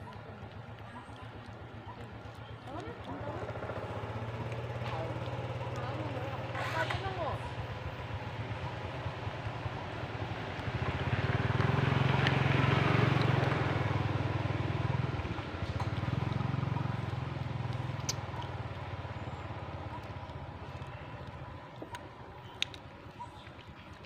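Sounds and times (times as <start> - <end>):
motorbike engine passing: 2.6 - 22.3.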